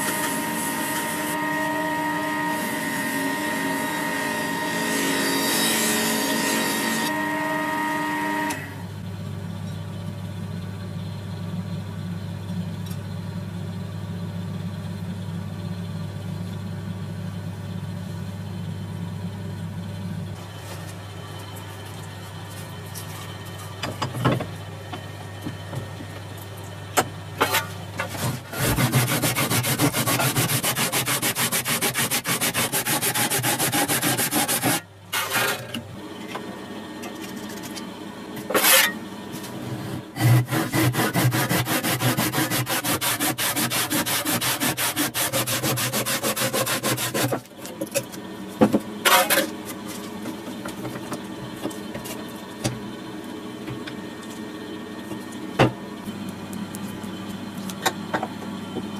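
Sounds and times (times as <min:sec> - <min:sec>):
abrasive tool sanding metal: 0:28.6 - 0:34.9, 0:40.2 - 0:47.4.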